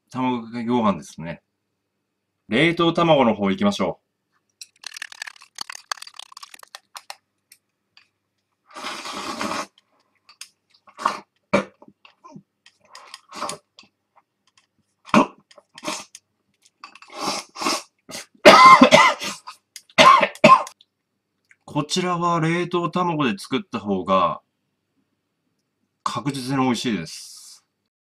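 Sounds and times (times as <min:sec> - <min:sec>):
rice slurping: 0:04.6 - 0:07.2, 0:08.7 - 0:09.9, 0:15.6 - 0:16.2, 0:16.8 - 0:17.9.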